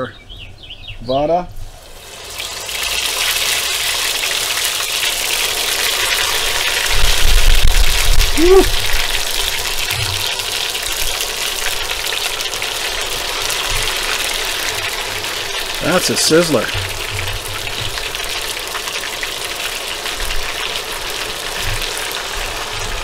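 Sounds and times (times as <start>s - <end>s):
deep-frying sizzle in oil: 1.6s - 23.0s
person saying ooh: 8.3s - 8.8s.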